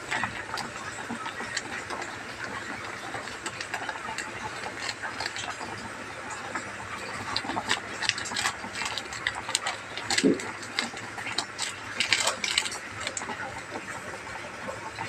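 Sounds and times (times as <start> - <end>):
small clicks and pops: 6.4 - 13.5.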